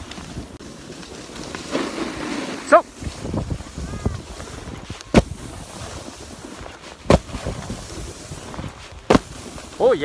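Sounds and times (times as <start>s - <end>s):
snowboard sliding over snow: 0.0s - 10.0s
wind on microphone: 2.9s - 9.7s
sharp thumps: 7.0s - 7.7s, 9.0s - 9.4s.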